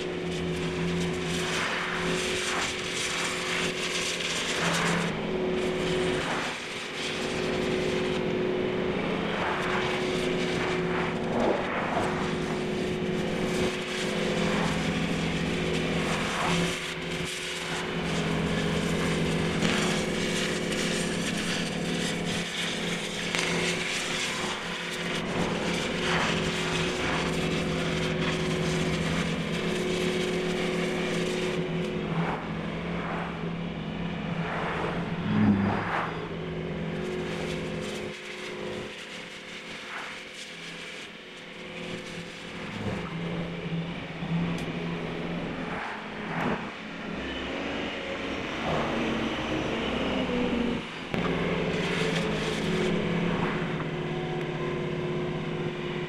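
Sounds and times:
constant rushing noise: 0.0 - 56.0
machine humming: 0.0 - 56.0.

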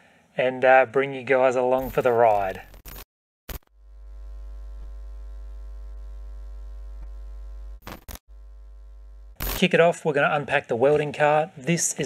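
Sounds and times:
low synthetic buzzing drone: 3.6 - 9.6.

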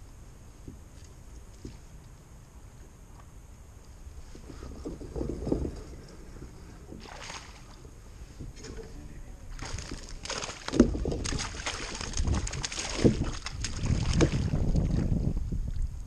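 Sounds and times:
fish thrashing in water: 6.9 - 7.9, 9.5 - 15.2
sharp splashes or knocks: 7.0 - 7.8, 9.5 - 15.0.

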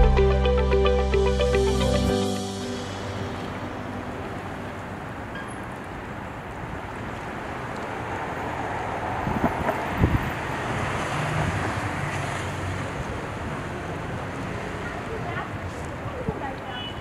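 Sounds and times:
wind rumbling on microphone: 6.4 - 11.7.

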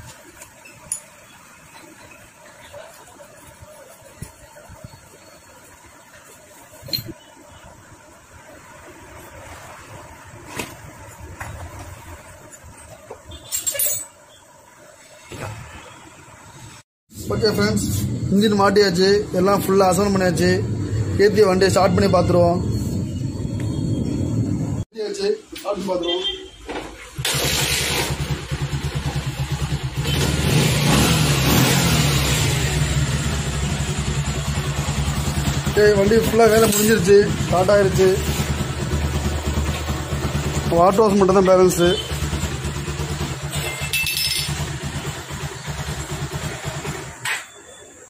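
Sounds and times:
metal hand tools clinking: 13.4 - 14.2, 43.6 - 44.6
motorcycle engine running: 27.3 - 47.2.

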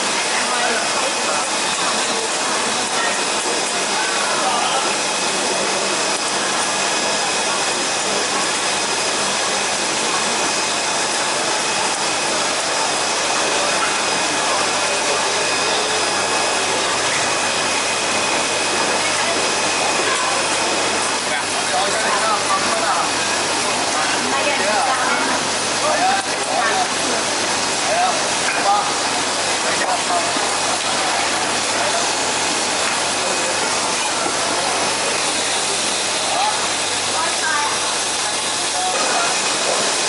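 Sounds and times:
faint voices: 0.0 - 40.0
running water and aeration hiss: 0.0 - 40.0.

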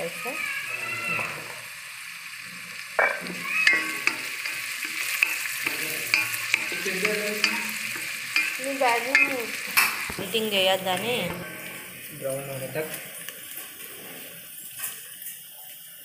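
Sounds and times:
food sizzling in hot oil: 0.0 - 16.0
wooden spatula scraping a pot: 3.2 - 12.1.

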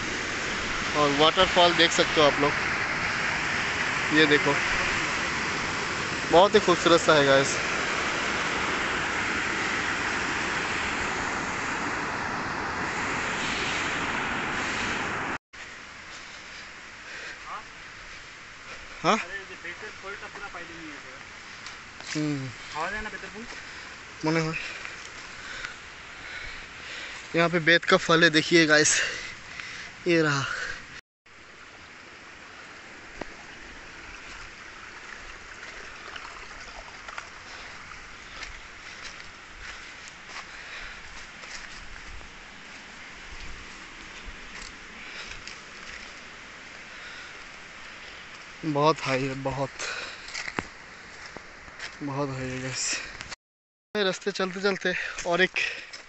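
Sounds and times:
water rushing over rocks: 0.0 - 51.7.

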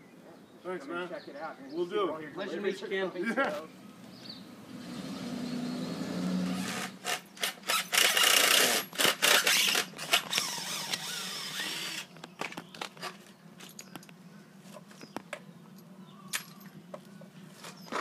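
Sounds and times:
power saw cutting wood: 4.8 - 12.1.

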